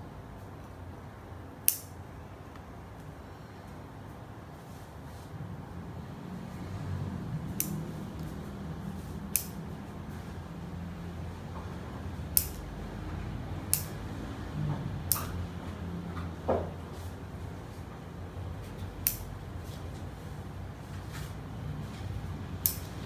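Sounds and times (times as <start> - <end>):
scissors snipping: 1.7 - 1.9, 7.5 - 8.3, 9.3 - 9.6, 12.3 - 12.7, 13.7 - 14.0, 15.1 - 15.4, 19.0 - 19.3, 22.6 - 23.0.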